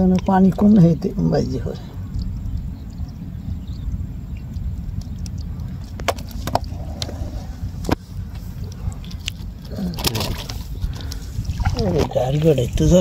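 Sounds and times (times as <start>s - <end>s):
low rumble: 1.1s - 13.0s.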